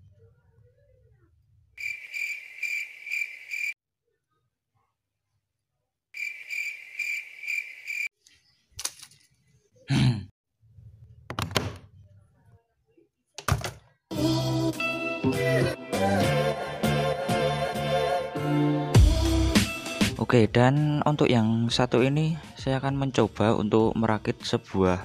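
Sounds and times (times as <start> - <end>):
pulsing cricket chirps: 1.8 - 3.8, 6.2 - 8.1.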